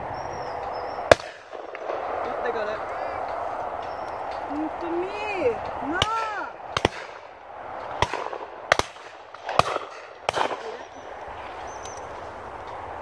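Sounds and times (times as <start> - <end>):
shotguns firing: 1.1 - 2.8, 5.9 - 11.6.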